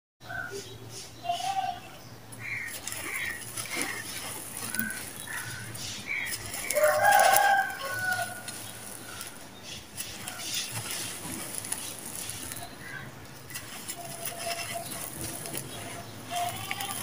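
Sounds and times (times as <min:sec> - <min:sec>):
chicken calls: 0:00.2 - 0:17.0
rooster crowing: 0:06.6 - 0:09.3.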